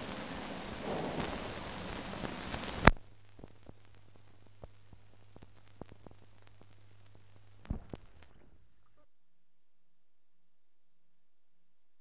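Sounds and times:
faint crackles and clicks: 0:00.0 - 0:09.2
film soundtrack surface hiss: 0:00.0 - 0:12.0
low steady hum: 0:00.0 - 0:12.0
sharp pop: 0:00.8 - 0:03.5, 0:07.6 - 0:08.5.

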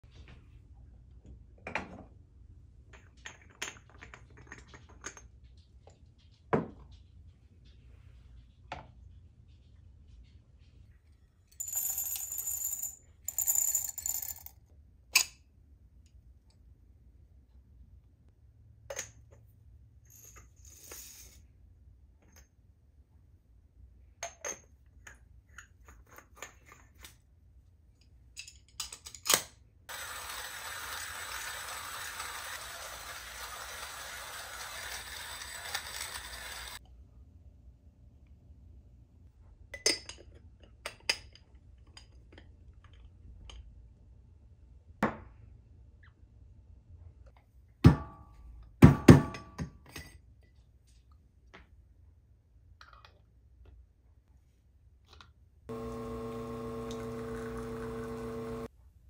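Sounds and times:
coffee grinder grinding beans: 0:29.9 - 0:36.8, 0:55.7 - 0:58.7.

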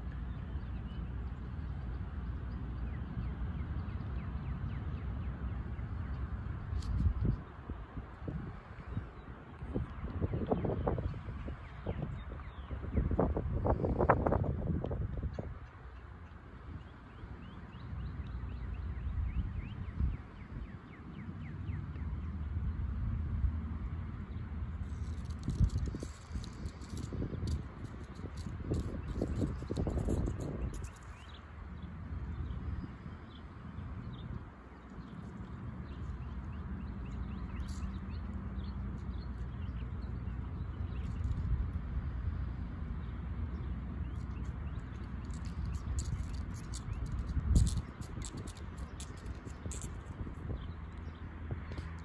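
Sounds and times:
low outdoor rumble: 0:00.0 - 0:52.0.

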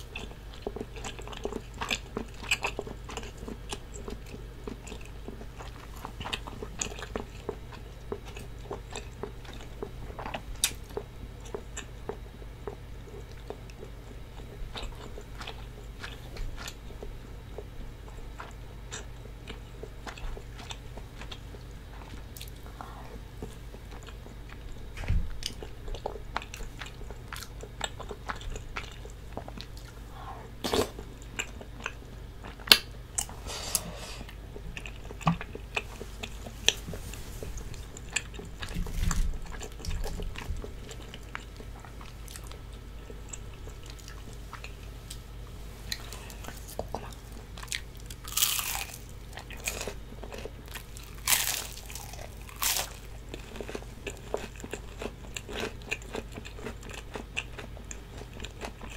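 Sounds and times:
chewing: 0:00.0 - 0:45.2, 0:45.9 - 0:58.9
crisp crunching bites: 0:47.6 - 0:55.7.

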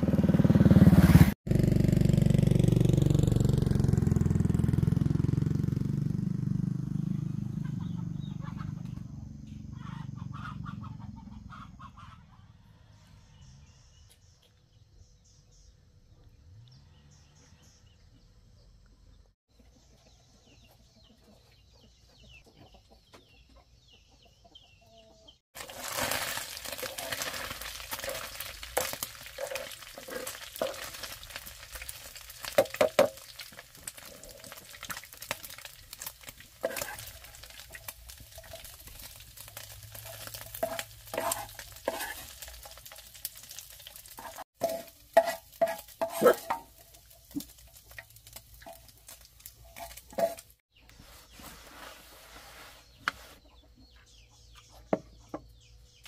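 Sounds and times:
ladle scraping and knocking pan: 0:25.6 - 0:31.4, 0:36.6 - 0:43.1, 0:44.2 - 0:48.0, 0:48.6 - 0:50.6
greens sizzling in hot oil: 0:25.6 - 0:50.6.

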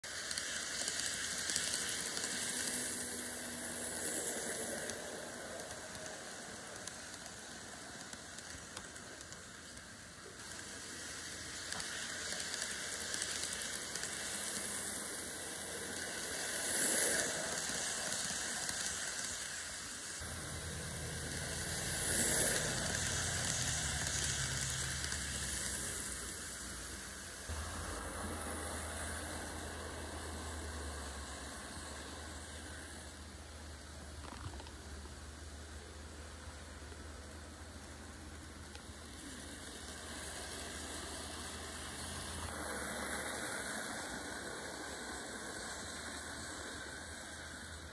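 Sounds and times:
model train wheels on rails: 0:00.0 - 0:47.9
small motors whirring: 0:00.1 - 0:33.0.

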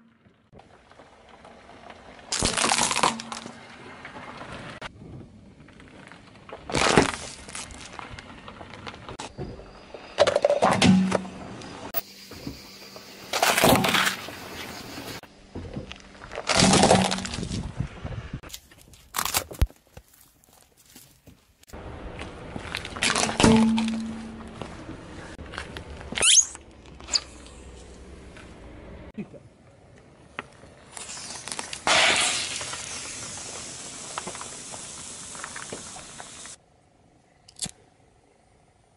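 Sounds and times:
crackles: 0:00.0 - 0:10.3, 0:11.4 - 0:28.7, 0:29.6 - 0:36.6
tyre crushing objects: 0:06.6 - 0:08.0, 0:13.3 - 0:14.3, 0:15.6 - 0:17.8, 0:18.5 - 0:21.5
lighters bursting under tyre: 0:30.8 - 0:36.6.

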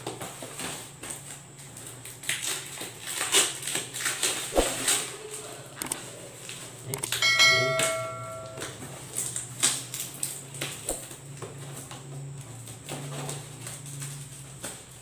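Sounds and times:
packing tape tearing: 0:00.0 - 0:05.2
bell-like chime: 0:07.2 - 0:08.7.

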